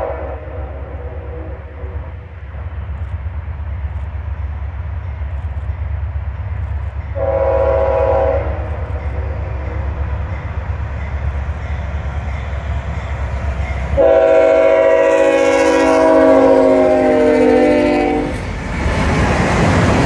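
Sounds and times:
locomotive horn blasts: 0.0 - 2.0, 7.2 - 9.8, 14.0 - 18.4.

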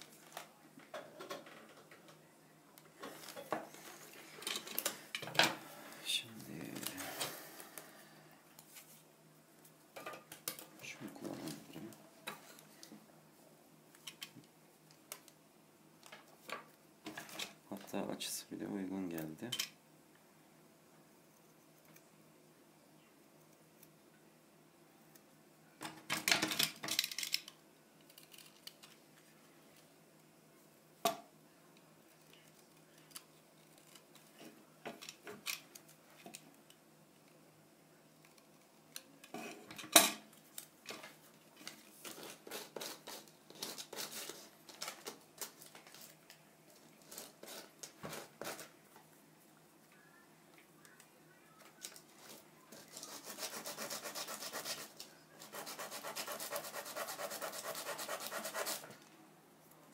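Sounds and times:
scraping on wood: 55.5 - 58.9.

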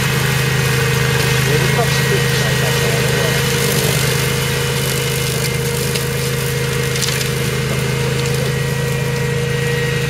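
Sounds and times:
blades cutting grass and brush: 0.0 - 10.0
ride-on mower running: 0.0 - 10.0
woody stems cracking: 3.6 - 8.6.

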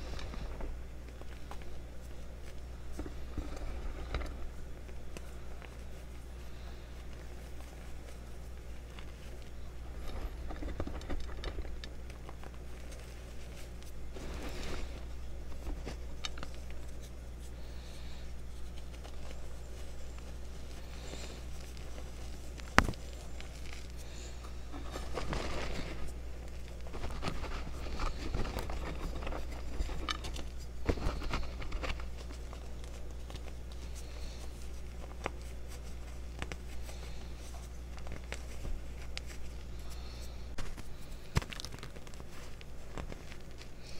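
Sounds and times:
low hum: 0.0 - 43.9
chalk powder crunching: 12.0 - 42.8.

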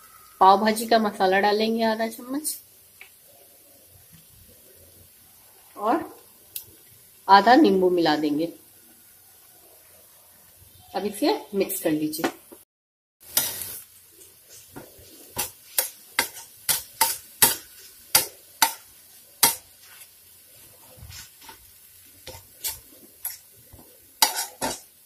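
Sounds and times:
faint sizzle: 0.0 - 12.6, 13.2 - 25.0
spatula scraping a griddle: 13.2 - 25.0.

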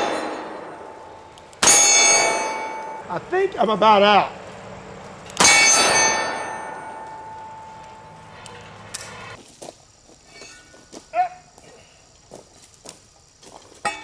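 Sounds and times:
metal knocks and clanks: 0.0 - 3.5, 5.2 - 9.4
steel target ringing: 0.0 - 4.3, 5.3 - 9.4.

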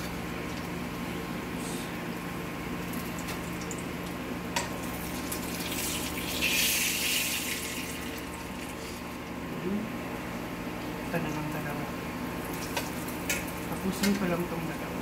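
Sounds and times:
steady low hum: 0.0 - 15.0
oil sizzling in a frying pan: 2.8 - 8.9, 12.4 - 14.2.

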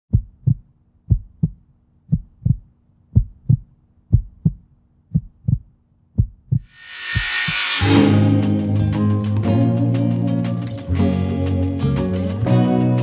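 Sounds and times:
heartbeat thumping: 0.1 - 6.7.

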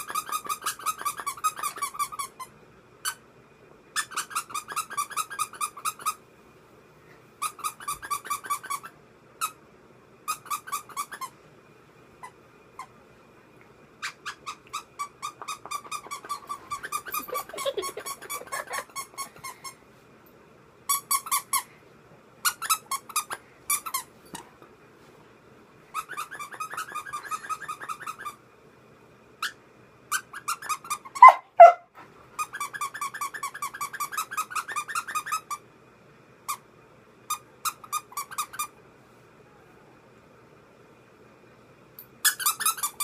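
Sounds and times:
squeaky dog toy squeaking: 0.0 - 2.4, 4.0 - 6.2, 7.4 - 9.6, 10.3 - 11.3, 14.0 - 19.5, 20.9 - 21.6, 22.4 - 24.1, 25.9 - 28.4, 29.4 - 31.8, 32.4 - 35.6, 42.2 - 43.0.

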